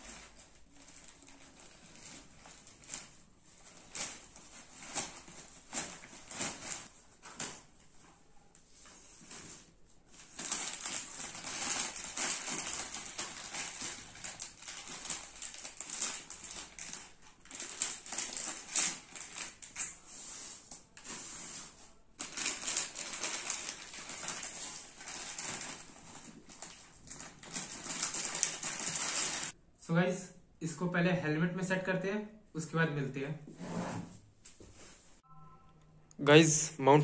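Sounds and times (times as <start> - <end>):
plastic bag crinkling: 0.0 - 7.7, 10.2 - 19.9, 22.2 - 29.6.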